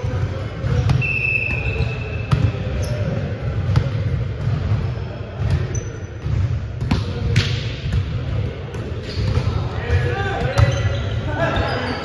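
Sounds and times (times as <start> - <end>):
low hum of gym: 0.0 - 12.0
volleyball smacks echoing: 5.4 - 10.7.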